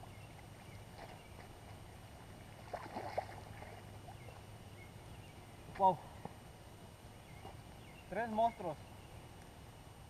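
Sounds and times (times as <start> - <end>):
water splashing: 0.9 - 4.5.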